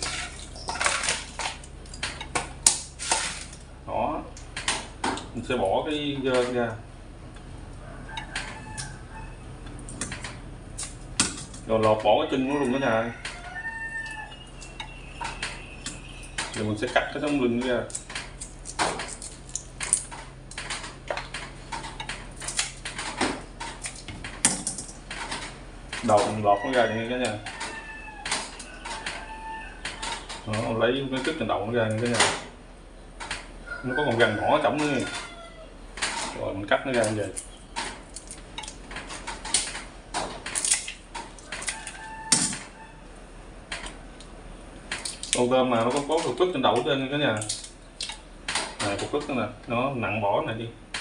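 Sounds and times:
scissors snipping shrimp shells: 17.2s - 20.1s, 37.0s - 38.8s, 40.5s - 42.1s.

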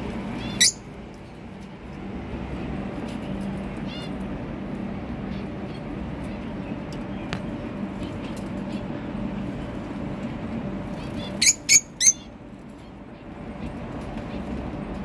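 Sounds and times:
steady low hum: 0.0s - 15.0s
cockatiel shrill calls: 0.4s - 0.8s, 11.3s - 12.3s.

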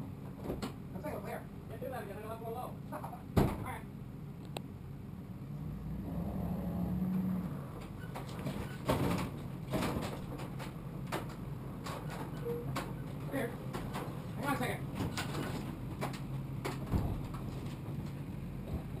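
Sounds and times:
sharp knocks and clunks: 15.0s - 17.5s.

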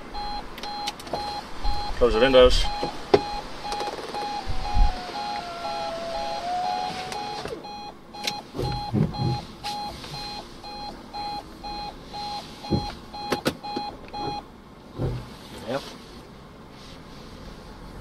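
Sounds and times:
car warning chime beeping: 0.1s - 14.5s
electric window motor whining: 2.8s - 10.4s.

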